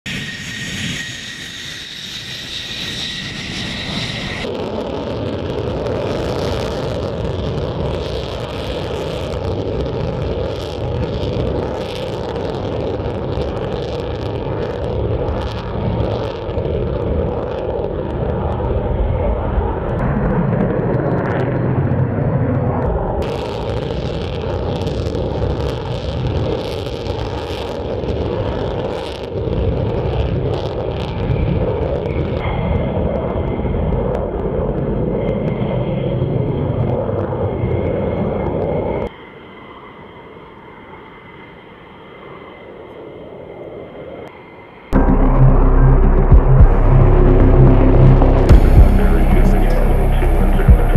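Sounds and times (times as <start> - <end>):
jet engine roaring at takeoff: 0.1 - 50.9.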